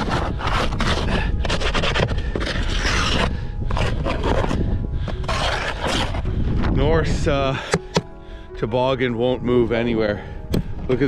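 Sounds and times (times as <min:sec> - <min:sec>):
scraper scraping ice off plastic: 0:00.0 - 0:06.4.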